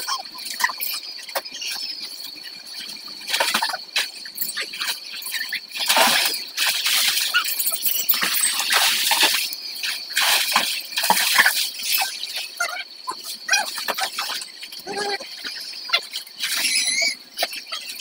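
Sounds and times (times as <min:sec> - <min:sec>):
water splashing in pool: 0:03.2 - 0:15.4.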